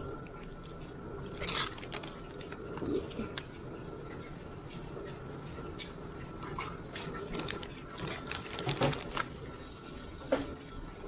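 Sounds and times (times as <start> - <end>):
plastic packet crinkling: 1.4 - 3.4, 7.0 - 9.4.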